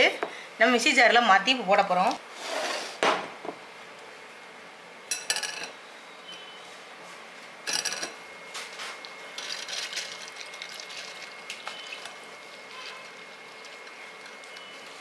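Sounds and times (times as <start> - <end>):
kitchenware clattering: 5.1 - 5.8, 7.7 - 8.2.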